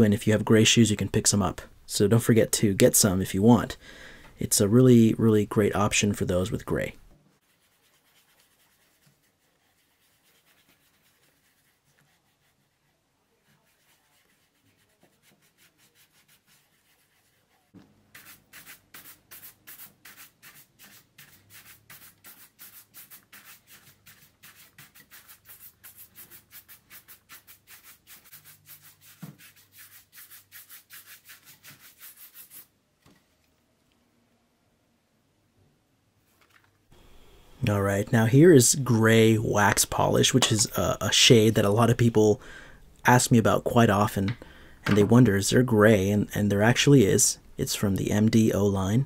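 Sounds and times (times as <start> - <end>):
brush buffing a shoe: 7.4 - 32.7.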